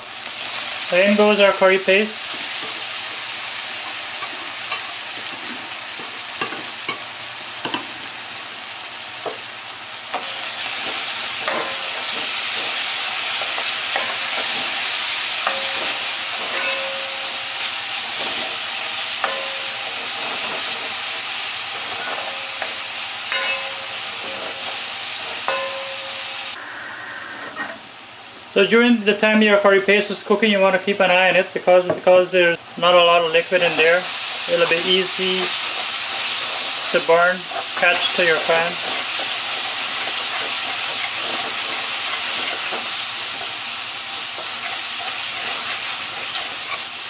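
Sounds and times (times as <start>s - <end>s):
paste sizzling in hot oil: 0.0s - 26.6s, 33.3s - 47.0s
metal spoon scraping pot: 15.4s - 17.3s.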